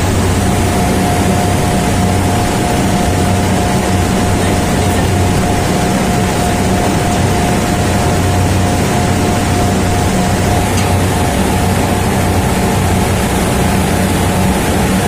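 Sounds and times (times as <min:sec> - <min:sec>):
machinery drone: 0:00.0 - 0:15.0.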